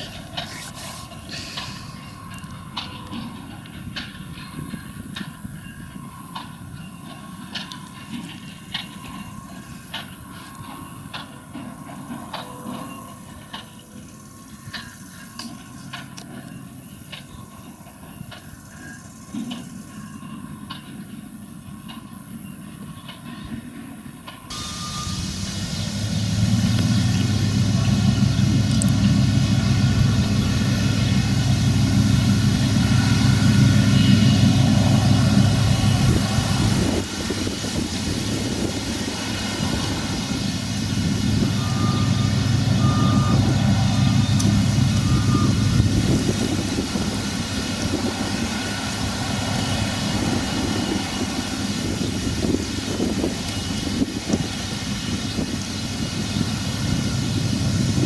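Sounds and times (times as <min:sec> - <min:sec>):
short high beeps: 0:24.5 - 0:25.2
tractor diesel engine under load: 0:24.5 - 0:58.0.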